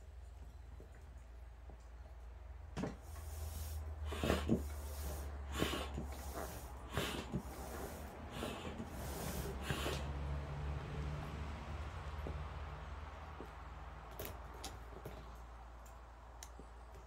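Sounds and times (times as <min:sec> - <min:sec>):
air pump whoosh: 0:03.0 - 0:10.3.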